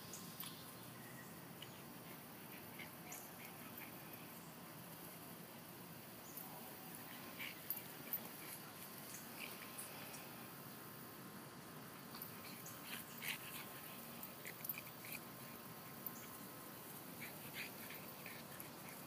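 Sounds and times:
faint outdoor background: 0.0 - 19.0
puppy and cat scuffling: 6.1 - 10.6, 11.2 - 19.0.

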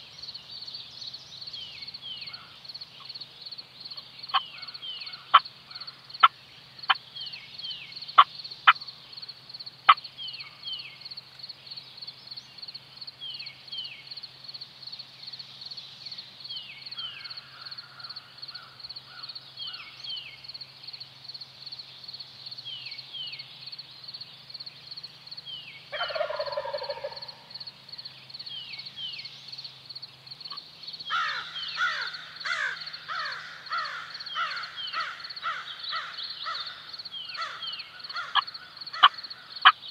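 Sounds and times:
songbird chirps: 0.0 - 39.9
turkey gobbling: 25.9 - 27.3, 38.2 - 39.2
rapid repeated calls: 25.9 - 27.5, 30.5 - 39.9.

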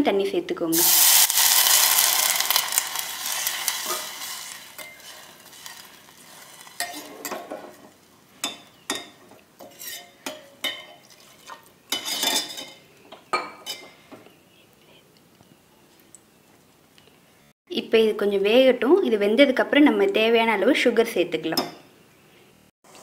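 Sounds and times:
water sizzling in hot fat: 0.7 - 7.3
steel spoon scraping a pot: 3.4 - 7.8, 9.6 - 12.8.

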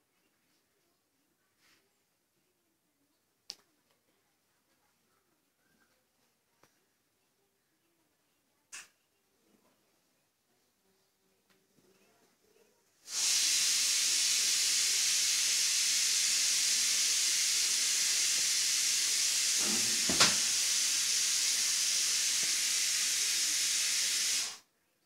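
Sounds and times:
loud steady hiss: 13.0 - 24.7
sharp knock: 19.6 - 20.5.

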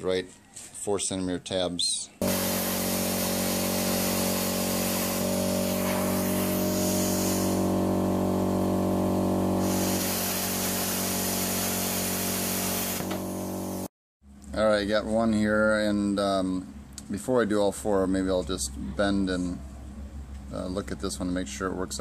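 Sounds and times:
plasma cutter hissing: 2.2 - 13.9
buzzing electrical hum: 2.2 - 17.1.

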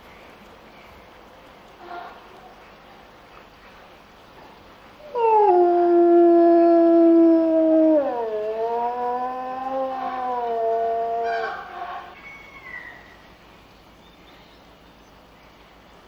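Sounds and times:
wolf howling: 5.0 - 11.8.

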